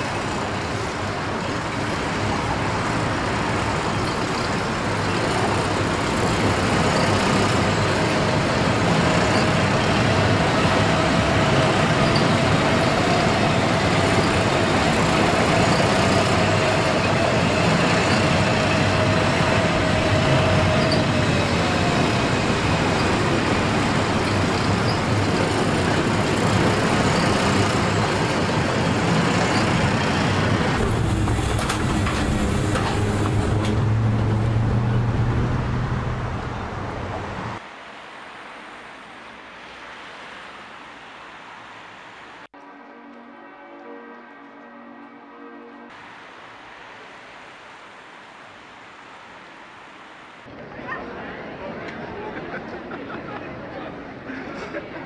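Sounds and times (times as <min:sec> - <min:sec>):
locomotives rumbling: 0:00.0 - 0:37.6.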